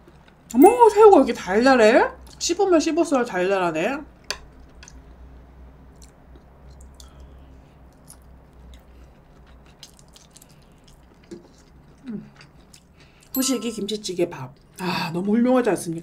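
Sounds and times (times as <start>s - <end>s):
wet chewing mouth sounds: 7.9s - 13.3s.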